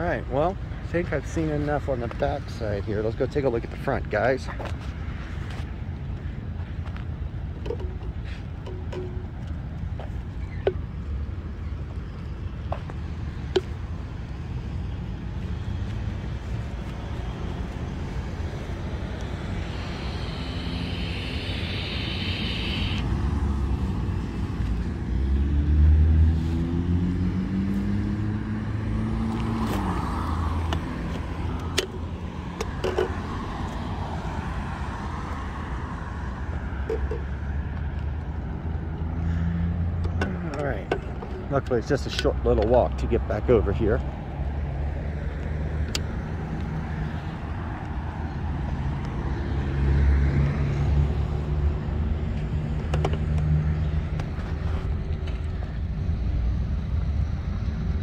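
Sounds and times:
rumble of passing cars: 0:00.0 - 0:58.0
vehicle accelerating past: 0:17.1 - 0:31.6.

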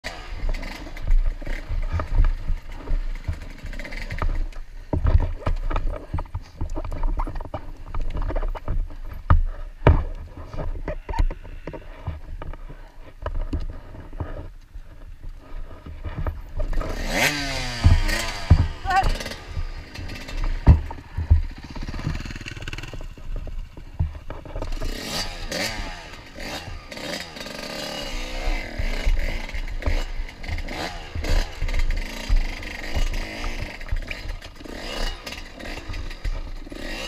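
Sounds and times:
dirt bike engine at low revs: 0:00.0 - 0:37.0
sharp knocks and rattles: 0:00.0 - 0:37.0.

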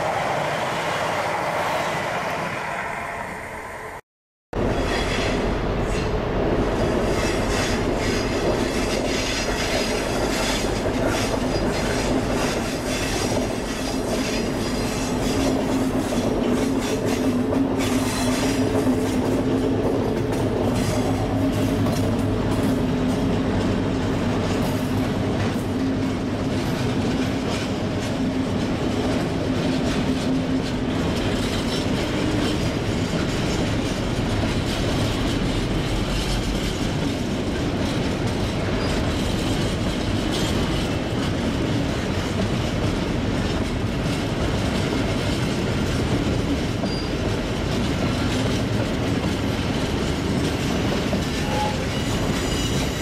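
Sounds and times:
diesel locomotive engine passing: 0:00.0 - 0:04.0
high wheel squeal: 0:51.4 - 0:53.0.

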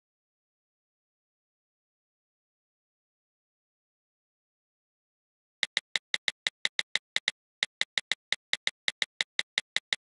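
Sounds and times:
tablet screen tapping clicks: 0:05.6 - 0:10.0.

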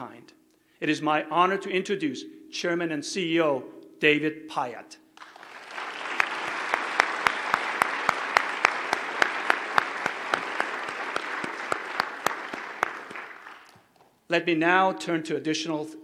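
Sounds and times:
audience applauding: 0:05.2 - 0:13.9
single sharp claps: 0:05.2 - 0:13.9.

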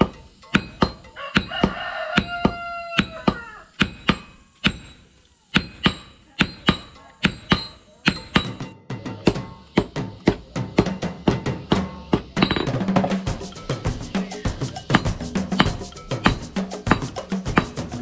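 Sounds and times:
hammers striking steel on anvil: 0:00.0 - 0:18.0
rooster crowing: 0:01.0 - 0:03.8.

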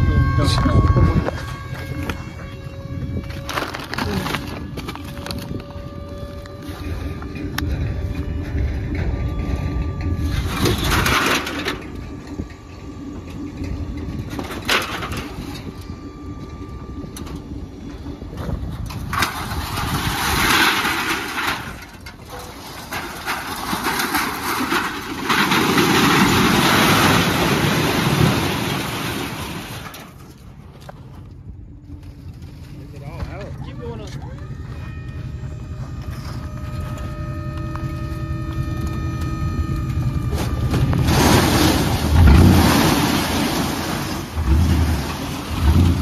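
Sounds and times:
heavy machinery engine rumble: 0:00.0 - 0:46.0
trash grinding and crushing: 0:00.0 - 0:46.0.

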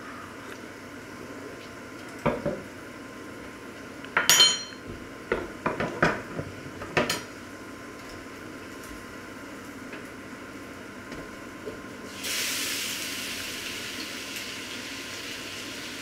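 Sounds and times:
cutlery clinking on wood: 0:04.2 - 0:04.8.

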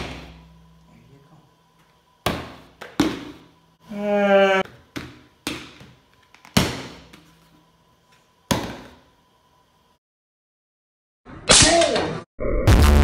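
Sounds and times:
crying wail: 0:03.9 - 0:04.7.

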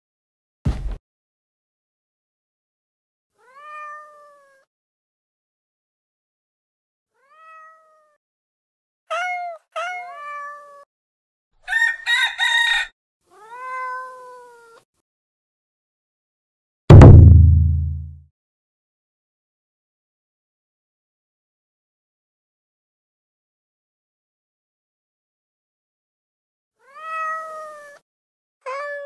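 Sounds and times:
cat meowing: 0:03.4 - 0:04.7, 0:07.2 - 0:08.2, 0:09.1 - 0:10.9, 0:13.3 - 0:14.8, 0:26.8 - 0:28.0, 0:28.6 - 0:29.0.

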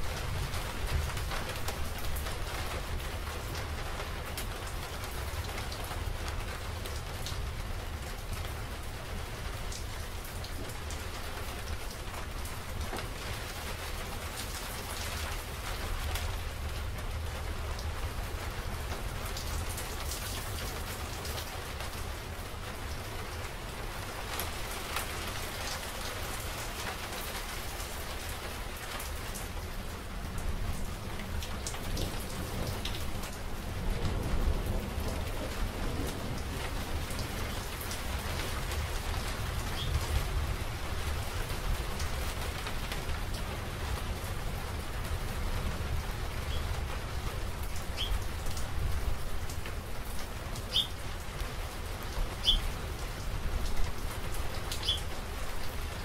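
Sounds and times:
heavy rain: 0:00.0 - 0:56.0
low rumble of thunder: 0:30.6 - 0:42.7.

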